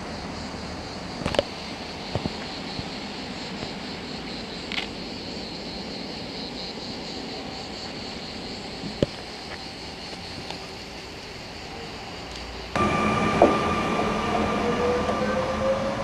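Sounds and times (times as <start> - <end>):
electric train running: 12.7 - 16.0.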